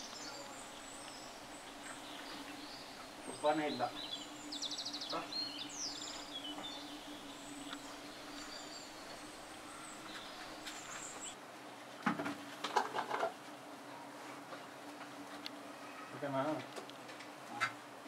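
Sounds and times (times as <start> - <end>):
bird chirps: 0.0 - 11.4
bees humming: 0.0 - 11.7.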